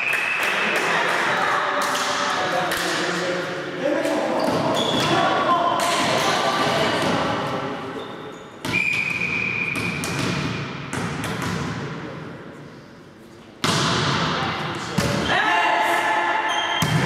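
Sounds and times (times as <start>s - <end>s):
voices in sports hall: 0.0s - 17.0s
volleyball thumps: 8.6s - 11.9s, 13.6s - 15.3s
referee whistle blast: 8.7s - 9.8s.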